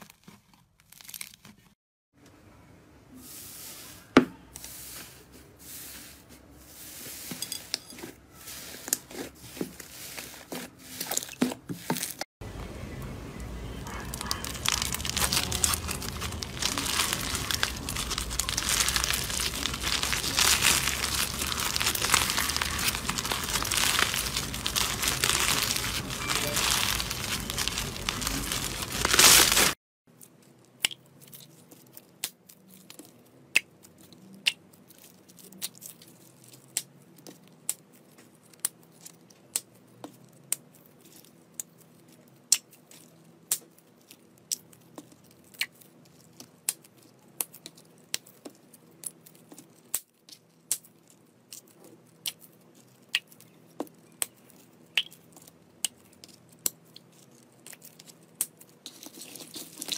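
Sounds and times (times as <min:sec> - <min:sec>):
slime crackling when squeezed: 0:13.8 - 0:29.8.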